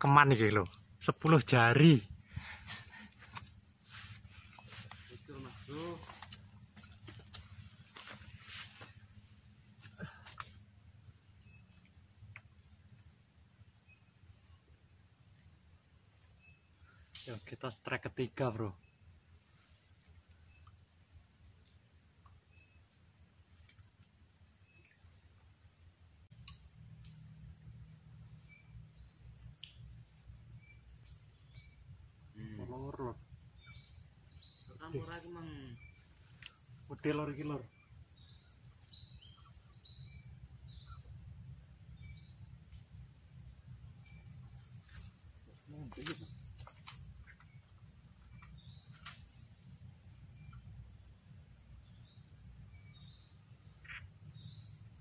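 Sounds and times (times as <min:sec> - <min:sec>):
man speaking: 0:00.0 - 0:02.1, 0:05.1 - 0:06.2, 0:32.4 - 0:33.2, 0:36.9 - 0:37.7
insects droning: 0:00.0 - 0:55.0
bird chirps: 0:32.6 - 0:42.8, 0:43.4 - 0:49.4, 0:51.8 - 0:55.0.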